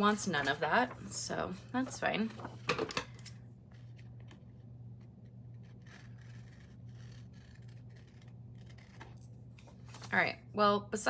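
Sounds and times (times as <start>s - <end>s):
low hum: 0.0s - 11.0s
paper rustling and scraping: 1.8s - 2.8s, 3.7s - 10.2s.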